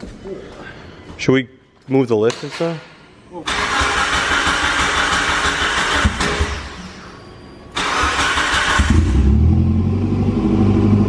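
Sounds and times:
starter motor cranking: 3.5 - 6.6, 7.8 - 9.2.

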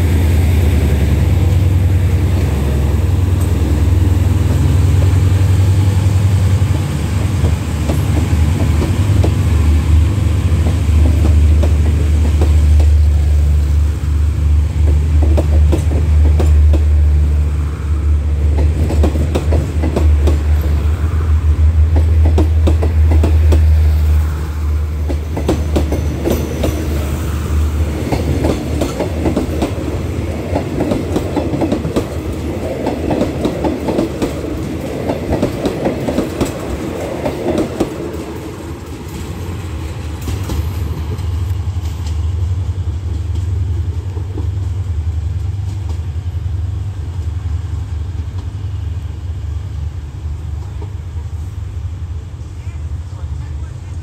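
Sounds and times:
train wheels clacking over rail joints: 7.1 - 9.5, 10.5 - 13.2, 14.8 - 17.0, 18.4 - 20.9, 21.8 - 24.1, 25.0 - 27.2, 27.8 - 44.6.

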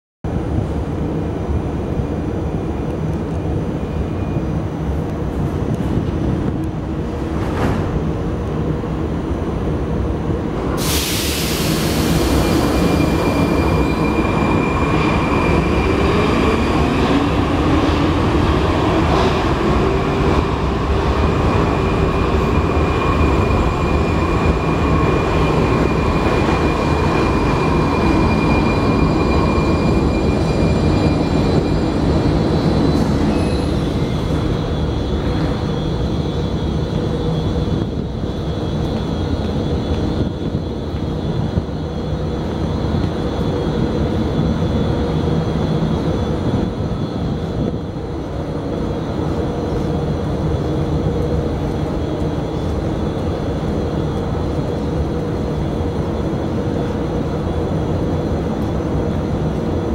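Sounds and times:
train rumble: 0.3 - 59.9
loud hiss: 10.8 - 13.2.

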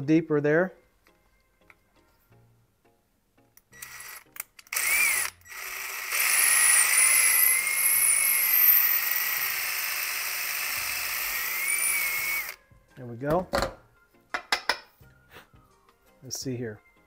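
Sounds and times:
electric drill whining: 3.7 - 12.6.

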